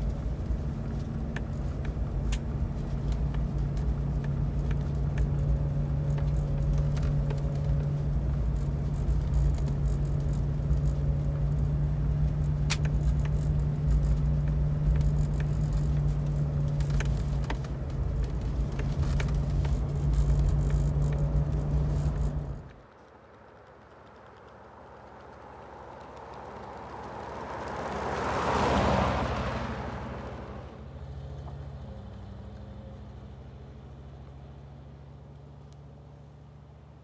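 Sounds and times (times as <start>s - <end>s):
light clicks and rattles: 0.0s - 29.5s
car engine drone: 0.0s - 37.0s
road rumble: 0.0s - 37.0s.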